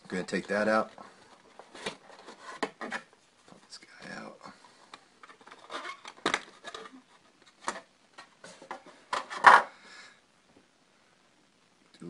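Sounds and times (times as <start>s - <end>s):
cardboard packaging rustling: 0.3s - 3.6s, 5.2s - 9.6s.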